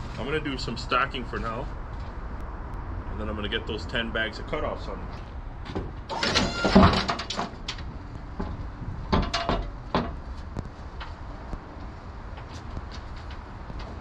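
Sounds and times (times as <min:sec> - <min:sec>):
hard objects knocking and clattering: 0:06.7 - 0:10.2.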